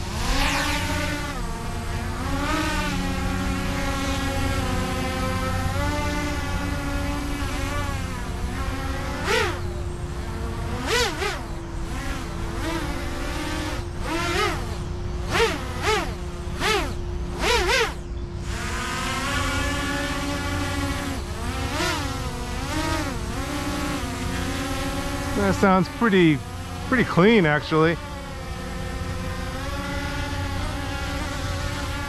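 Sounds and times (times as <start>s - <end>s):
quadcopter drone buzzing: 0.0s - 32.0s.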